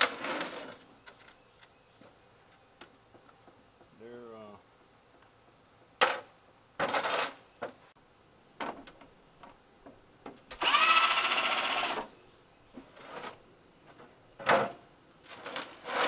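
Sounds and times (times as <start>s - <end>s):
cordless drill whirring: 10.6s - 12.1s.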